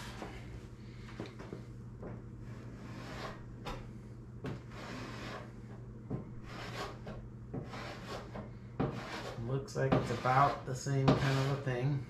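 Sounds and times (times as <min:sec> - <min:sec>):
steady low hum: 0:00.0 - 0:12.0
paint scraper scraping: 0:02.7 - 0:03.4, 0:04.5 - 0:05.6, 0:06.4 - 0:11.8.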